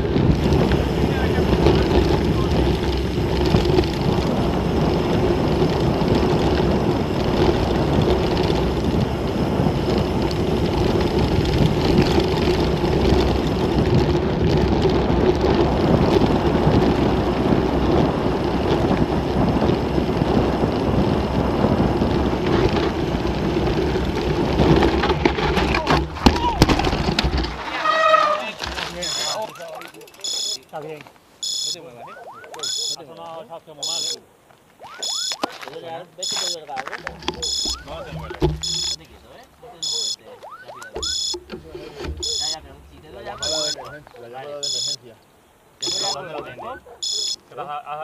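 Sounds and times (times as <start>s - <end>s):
wind on microphone: 0.0s - 25.8s
bike rattling: 0.0s - 45.0s, 45.8s - 47.5s
tyres rumbling on gravel: 0.0s - 48.0s.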